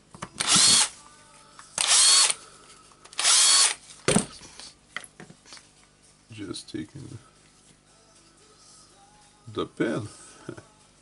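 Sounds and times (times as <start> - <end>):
cordless drill whining: 0.4 - 0.9, 1.8 - 2.4, 3.2 - 3.8.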